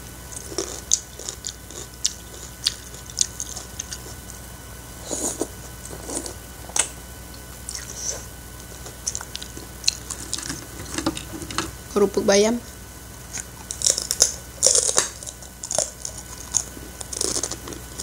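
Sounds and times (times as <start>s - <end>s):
wet chewing and lip smacks: 0.9s - 4.2s, 9.0s - 10.5s.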